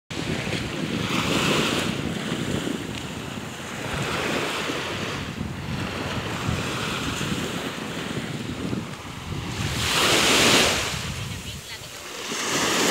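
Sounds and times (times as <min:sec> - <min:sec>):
waves breaking on sandy shore: 0:00.1 - 0:12.9
wind buffeting microphone: 0:00.1 - 0:12.9.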